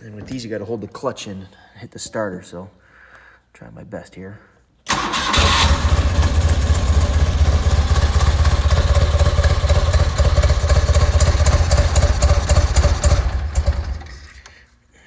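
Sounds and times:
motorcycle engine running unevenly: 0:06.1 - 0:14.3.

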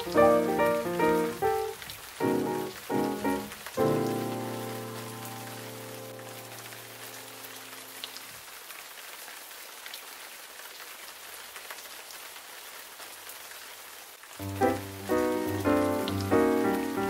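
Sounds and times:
held music chord: 0:00.0 - 0:05.2, 0:14.4 - 0:17.0
music: 0:00.0 - 0:06.6, 0:14.4 - 0:17.0
steady rain with drop ticks: 0:00.0 - 0:17.0.

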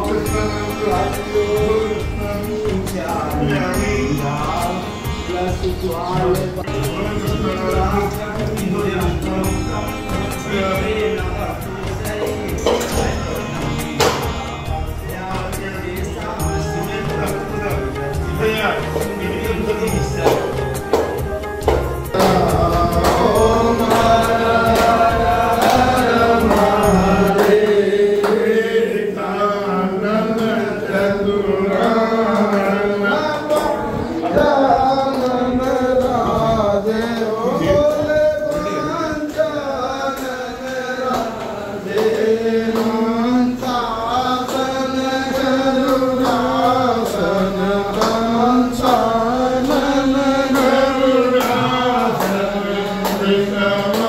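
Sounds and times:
sharp percussive strikes: 0:00.0 - 0:28.6
devotional chanting to music: 0:00.0 - 0:54.0.

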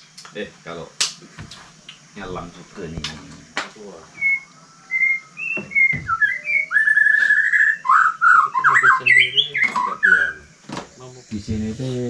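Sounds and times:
whistled notes: 0:04.2 - 0:10.6.

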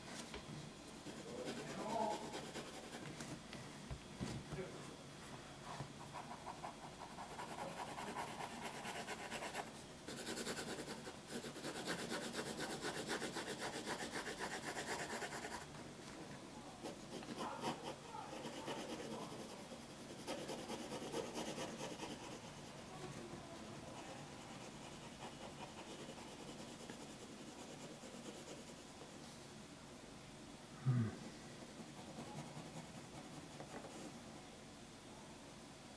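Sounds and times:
pencil scratching on paper: 0:01.0 - 0:03.1, 0:06.0 - 0:15.7, 0:16.8 - 0:22.8, 0:23.9 - 0:28.9, 0:31.7 - 0:34.1.

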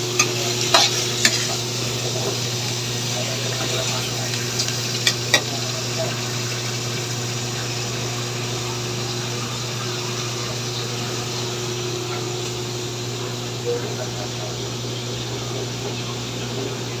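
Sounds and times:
squid sizzling in a wok: 0:00.0 - 0:15.1.

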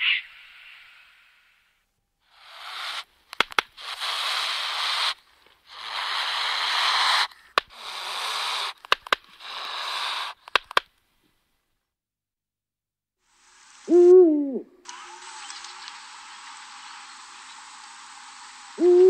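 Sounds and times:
hissing whooshes: 0:02.3 - 0:10.6
sharp clicks: 0:03.3 - 0:04.3, 0:07.2 - 0:11.0.

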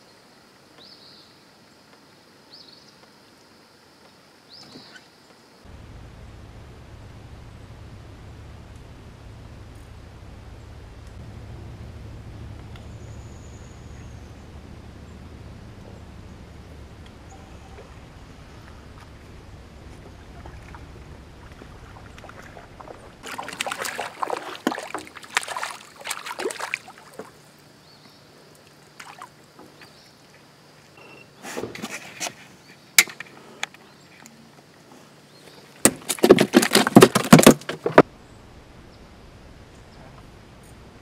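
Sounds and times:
low rumble: 0:05.7 - 0:24.2.

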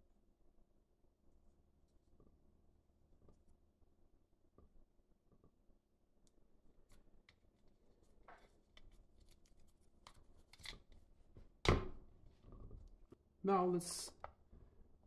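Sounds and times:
tape rustling and clicking: 0:06.3 - 0:11.4.

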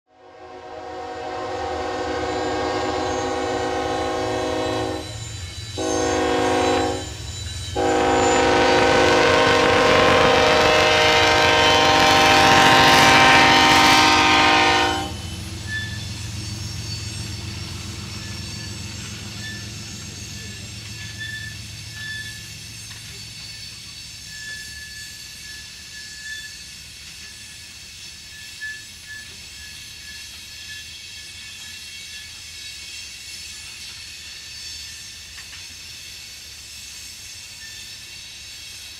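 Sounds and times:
locomotive air horn blasts: 0:00.1 - 0:05.2, 0:05.8 - 0:07.2, 0:07.8 - 0:15.4
train cars rolling past: 0:00.3 - 0:38.9
locomotive engine rumble: 0:01.2 - 0:24.3
faint wheel squeal: 0:15.0 - 0:36.2.

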